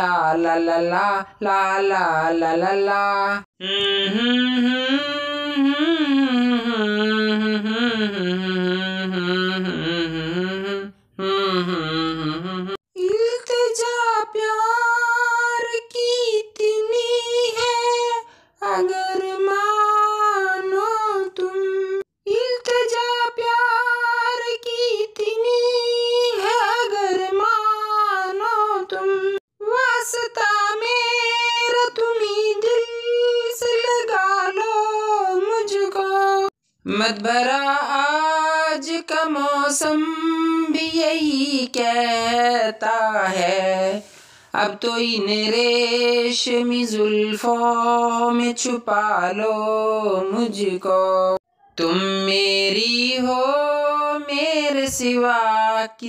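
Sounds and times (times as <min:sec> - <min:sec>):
high voice singing wordlessly: 0:00.0 - 0:56.0
low voice humming: 0:03.6 - 0:12.8.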